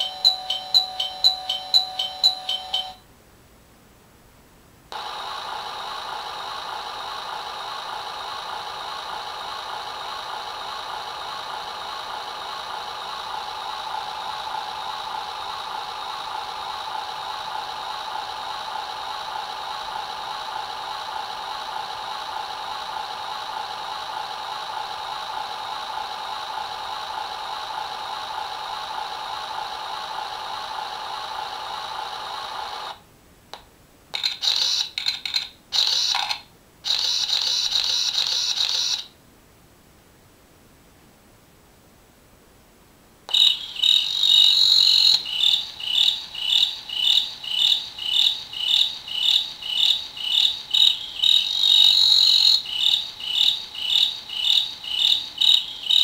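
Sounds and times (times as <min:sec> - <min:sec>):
engine idling sound effect: 0:05.0 - 0:33.0, 0:43.3 - 0:56.0
camera shutter effects: 0:34.2 - 0:39.1.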